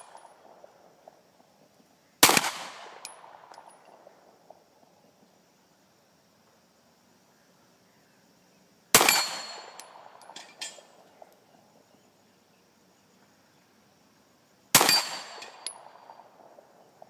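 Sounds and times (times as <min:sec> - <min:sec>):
pistol shot echoing: 0:02.2 - 0:04.1, 0:09.0 - 0:10.4, 0:14.8 - 0:16.5
faint metallic clinks: 0:03.0 - 0:04.1, 0:09.1 - 0:11.4, 0:14.9 - 0:16.2.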